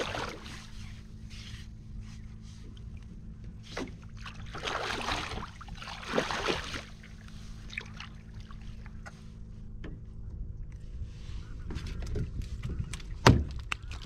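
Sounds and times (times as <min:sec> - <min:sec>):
steady low hum: 0:00.0 - 0:14.0
water sloshing around boat: 0:00.0 - 0:14.0.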